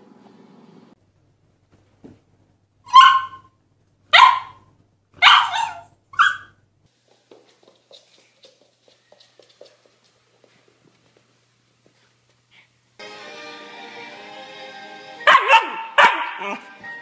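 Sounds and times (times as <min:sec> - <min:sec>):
puppy yelping barks: 0:02.9 - 0:03.5, 0:04.1 - 0:06.6, 0:15.3 - 0:16.7.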